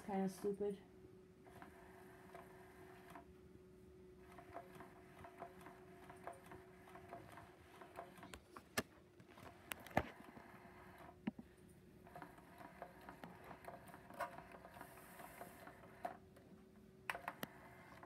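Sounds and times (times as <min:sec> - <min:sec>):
mechanism ticking and clicking: 0:04.2 - 0:08.8, 0:12.0 - 0:16.5, 0:17.1 - 0:18.0.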